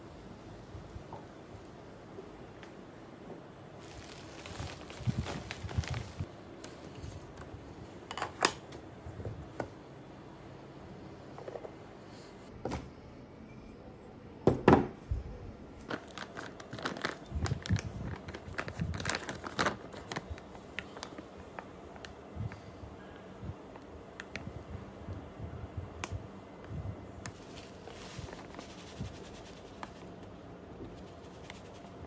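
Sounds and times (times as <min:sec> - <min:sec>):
plastic bag crinkling: 0:03.8 - 0:06.3, 0:15.8 - 0:22.2, 0:27.3 - 0:30.2.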